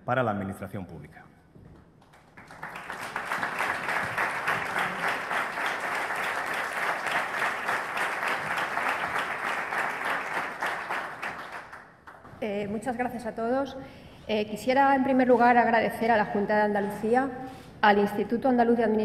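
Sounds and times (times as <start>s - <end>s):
audience applauding: 2.0s - 12.3s.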